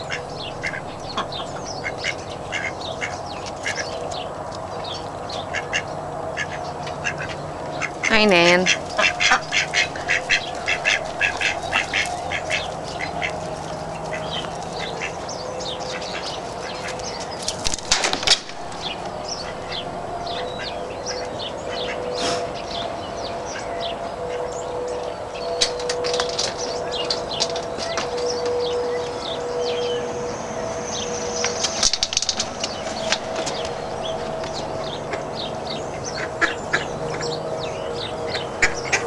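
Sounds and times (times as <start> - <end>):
ducks quacking: 0.0 - 4.1, 5.4 - 15.2, 17.8 - 22.4, 31.9 - 37.4, 38.0 - 39.0
small birds chirping: 0.0 - 39.0
steady distant tone: 0.0 - 39.0
loud rustle: 17.4 - 19.8.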